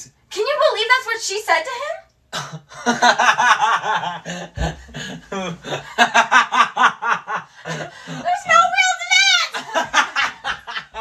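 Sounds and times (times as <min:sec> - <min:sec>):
man laughing hard: 0:02.6 - 0:08.2, 0:09.6 - 0:11.0.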